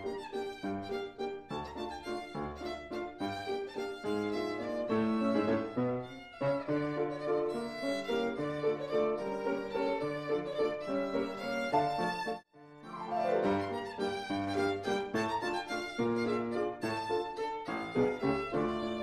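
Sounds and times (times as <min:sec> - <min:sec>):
violin melody: 0:00.0 - 0:19.0.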